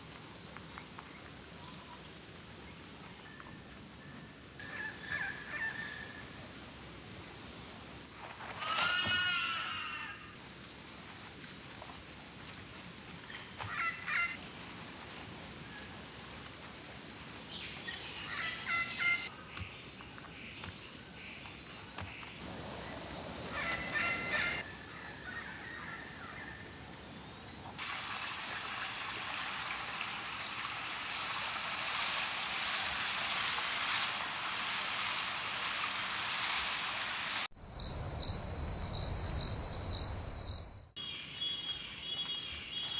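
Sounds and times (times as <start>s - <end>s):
bird calls: 17.6s - 26.6s, 41.0s - 42.9s
dense high hiss: 22.4s - 24.8s.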